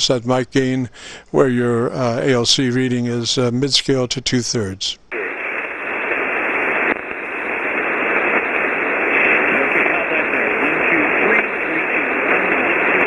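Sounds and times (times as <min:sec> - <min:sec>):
radio static hiss: 0:00.0 - 0:13.0
weak voice over radio: 0:09.1 - 0:13.0.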